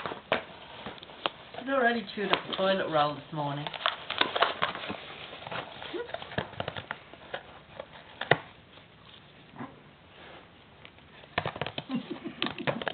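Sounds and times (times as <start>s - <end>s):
dog chewing cardboard box: 3.6s - 8.6s.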